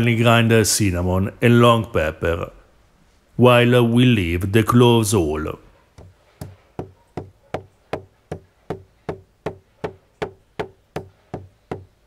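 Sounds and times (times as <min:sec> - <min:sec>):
pestle pounding in stone mortar: 0:06.0 - 0:12.0.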